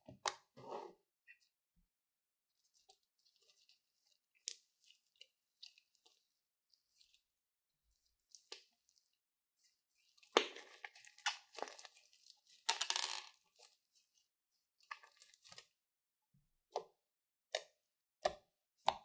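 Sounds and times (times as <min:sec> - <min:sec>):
slime squelching and crackling: 0:02.6 - 0:12.7, 0:14.8 - 0:15.8.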